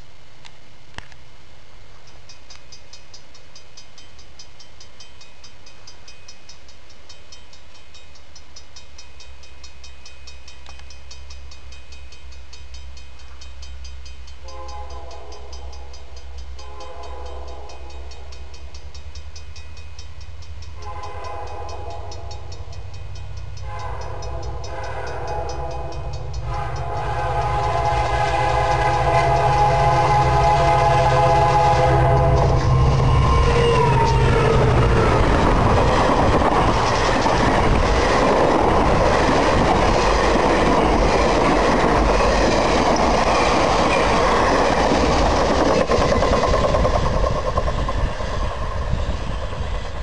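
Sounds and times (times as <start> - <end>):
train engine rumble: 0.0 - 50.0
locomotive horn blasts: 14.4 - 15.9, 16.6 - 18.3, 20.8 - 22.6, 23.6 - 35.1.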